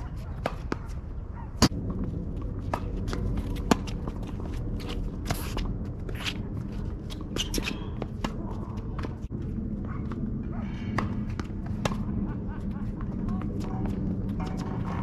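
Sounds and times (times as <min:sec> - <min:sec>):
shoes scuffing on court: 0:02.4 - 0:10.2.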